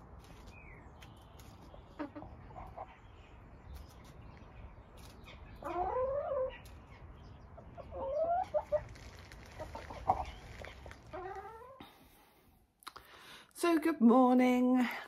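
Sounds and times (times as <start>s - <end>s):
hens calling: 5.3s - 11.8s.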